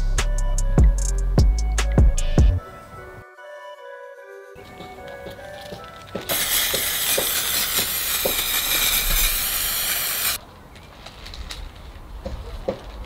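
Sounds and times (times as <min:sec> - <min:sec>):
aerosol spray can hissing: 0:06.2 - 0:10.4.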